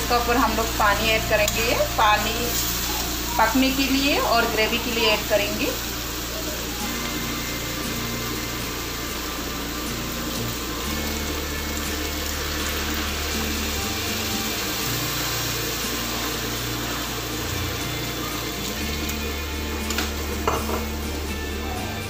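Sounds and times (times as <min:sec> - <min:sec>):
background music: 0:00.0 - 0:22.0
water pouring into a pan: 0:04.4 - 0:21.3.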